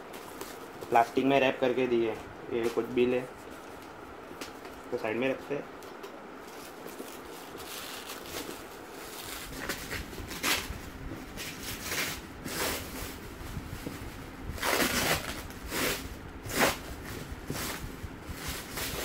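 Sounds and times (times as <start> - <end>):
plastic wrapping crinkling: 6.4 - 16.8.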